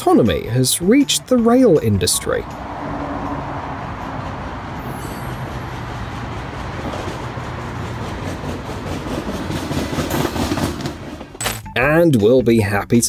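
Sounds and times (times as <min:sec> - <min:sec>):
steel wheels rumbling on rails: 0:02.3 - 0:11.4.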